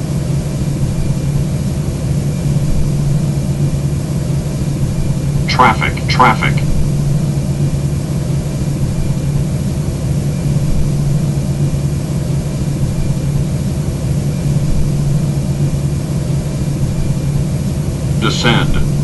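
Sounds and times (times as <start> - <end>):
constant low hum: 0.0 - 19.0.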